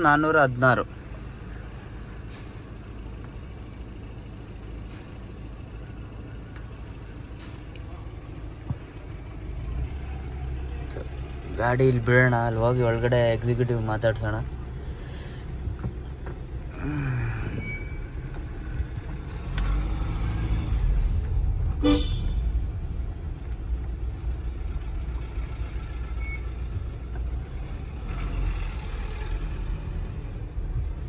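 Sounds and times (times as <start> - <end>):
car engine and tyres rumbling: 0.0 - 31.0
car horn toot: 21.8 - 22.5.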